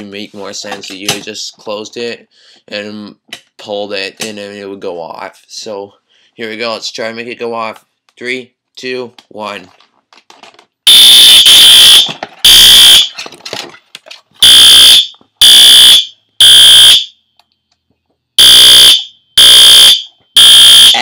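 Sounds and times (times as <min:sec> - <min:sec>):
fire alarm horn blasts: 0:10.9 - 0:13.1, 0:14.4 - 0:17.2, 0:18.4 - 0:21.0.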